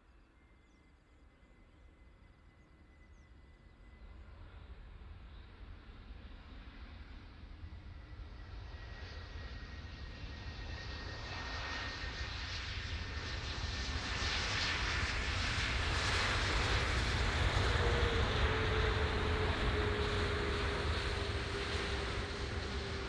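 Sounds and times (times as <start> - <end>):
jet engines rushing: 9.2 - 23.0
thin engine whine: 14.8 - 23.0.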